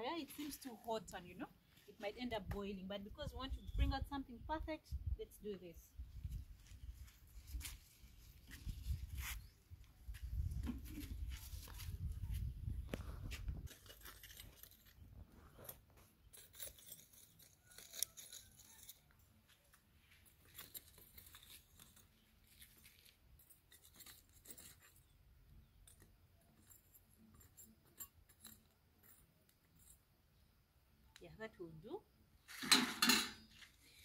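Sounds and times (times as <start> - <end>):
metal spoon scraping charcoal: 13.6 - 19.4, 20.2 - 30.5, 32.4 - 34.0.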